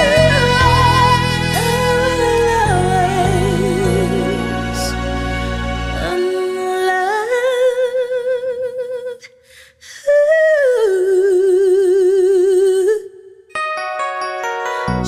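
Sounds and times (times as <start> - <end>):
woman singing: 0.0 - 5.0, 6.0 - 13.4
breath: 9.4 - 10.0.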